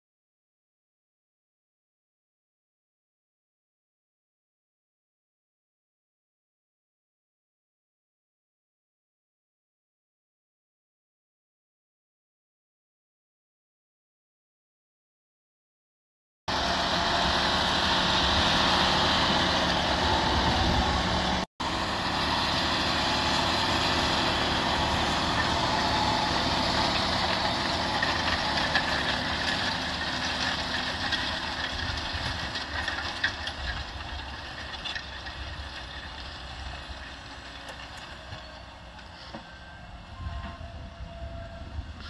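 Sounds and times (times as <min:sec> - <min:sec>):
tractor diesel engine under load: 0:16.5 - 0:42.0.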